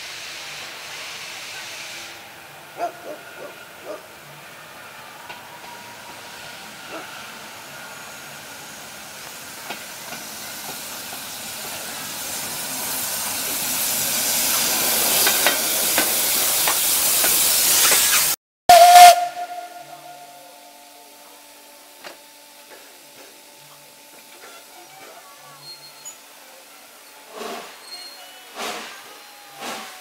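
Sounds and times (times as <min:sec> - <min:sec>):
steam locomotive hissing steam: 0:00.0 - 0:30.0
locomotive hum: 0:01.6 - 0:30.0
loud steam blast with whistle: 0:16.2 - 0:21.6, 0:27.2 - 0:30.0.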